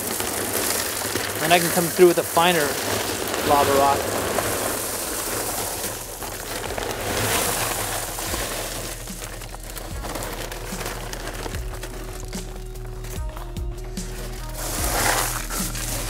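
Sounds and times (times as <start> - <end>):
gravel clicking spread by hand: 0.0 - 16.0
gravel pouring from plastic bag: 0.0 - 16.0.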